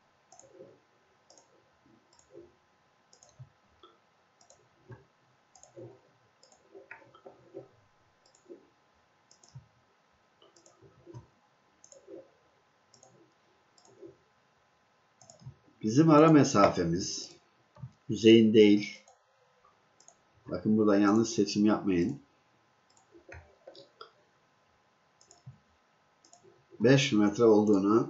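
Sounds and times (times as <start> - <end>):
faint computer mouse clicks: 1.3 - 1.5, 3.1 - 5.0, 5.6 - 5.8, 6.4 - 7.0, 8.2 - 8.6, 9.3 - 9.7, 10.4 - 12.1, 12.9 - 13.2, 15.2 - 15.6, 20.0 - 20.2, 22.9 - 24.2, 25.2 - 25.6, 26.2 - 26.5.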